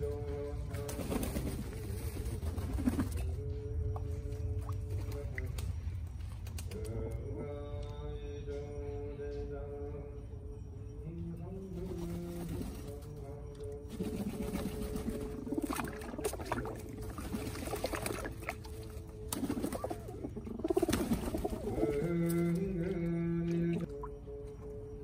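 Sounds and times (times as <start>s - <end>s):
monotone chanting: 0.0s - 25.0s
pigeons splashing and flapping: 0.7s - 3.3s, 11.9s - 13.0s, 13.9s - 23.0s.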